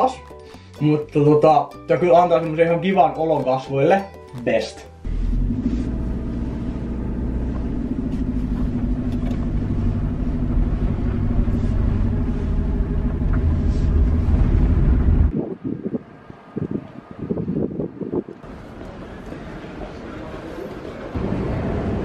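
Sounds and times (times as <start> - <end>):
car engine and road noise: 5.0 - 22.0.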